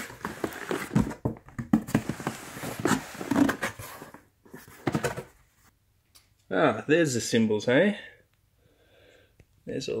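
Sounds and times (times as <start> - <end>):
cardboard box being handled: 0.0 - 5.4.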